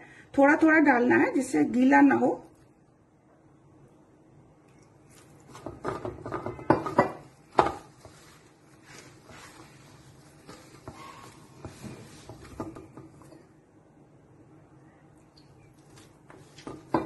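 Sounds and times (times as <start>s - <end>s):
dough rubbing and crumbling: 7.4s - 13.4s.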